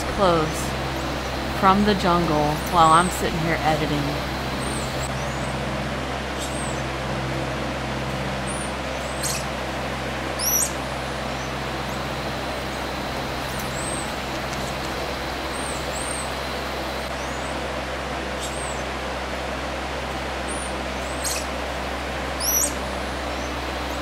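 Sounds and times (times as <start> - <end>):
squirrel monkeys chirping: 0.0 - 5.5, 6.3 - 6.8, 8.4 - 9.5, 10.4 - 17.5, 18.4 - 18.8, 20.5 - 21.5, 22.4 - 24.0
steady rushing background noise: 0.0 - 24.0.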